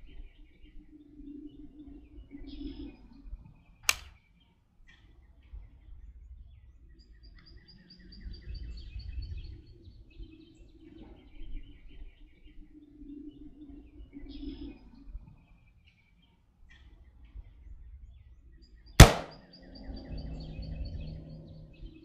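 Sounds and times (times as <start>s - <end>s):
rifle shot: 3.9s - 4.1s, 19.0s - 19.4s
birds chirping: 19.0s - 22.0s.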